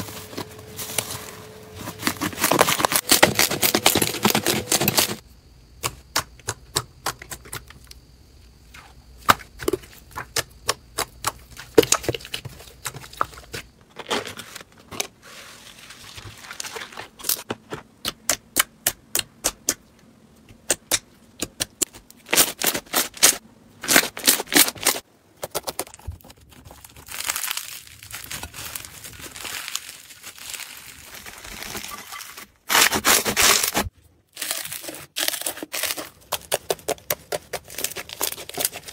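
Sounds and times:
slime crackling and squishing: 0:25.6 - 0:38.9.

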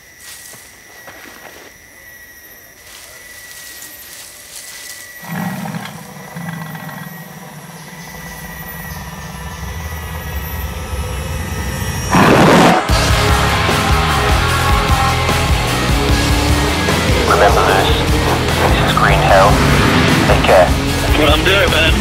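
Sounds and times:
footsteps in dry leaves: 0:00.0 - 0:01.8, 0:02.8 - 0:06.0
high whine: 0:00.0 - 0:22.0
deep rumble: 0:06.9 - 0:22.0.

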